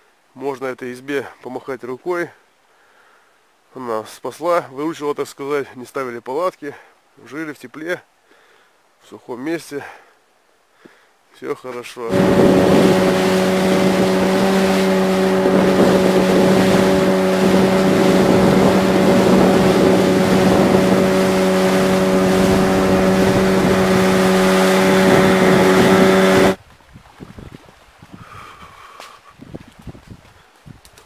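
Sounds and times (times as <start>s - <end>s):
wind: 0.0s - 31.0s
outboard motor droning: 12.1s - 26.6s
water noise: 12.1s - 28.1s.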